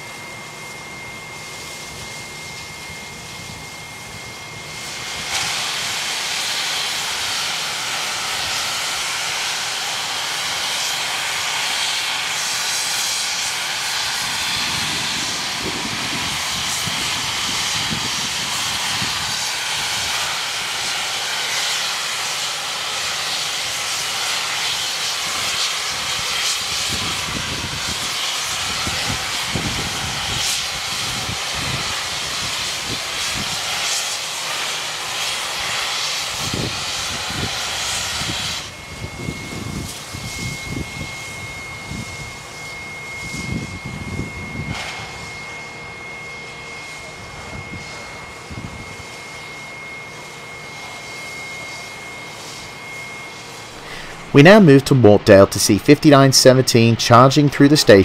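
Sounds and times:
steam locomotive hissing steam: 0.0 - 58.0
thin high tone: 49.6 - 58.0.

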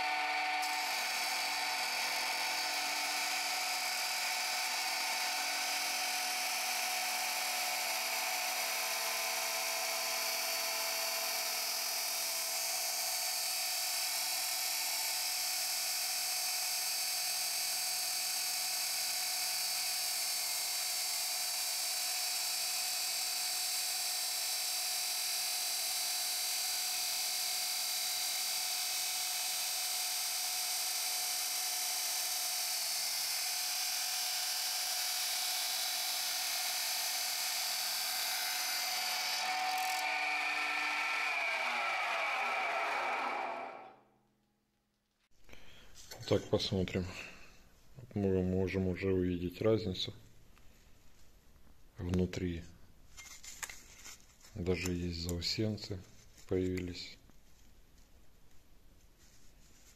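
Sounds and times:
chop saw grinding steel: 0.0 - 43.9.

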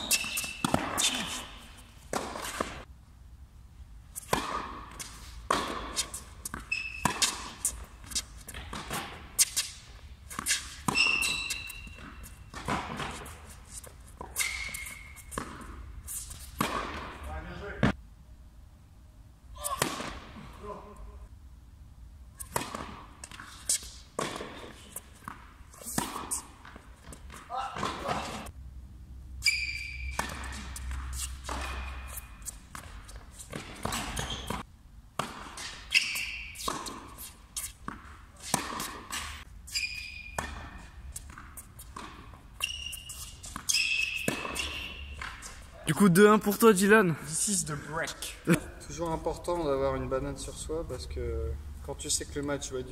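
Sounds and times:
sneakers squeaking on court: 0.0 - 2.8, 4.2 - 17.1, 29.4 - 45.9
racket striking tennis ball: 0.0 - 2.9, 4.2 - 18.0, 19.6 - 20.4, 22.4 - 28.5, 29.8 - 39.5, 40.1 - 45.7
tennis ball bouncing: 0.0 - 2.9, 4.2 - 18.0, 19.7 - 20.3, 22.4 - 28.5, 29.8 - 45.7.

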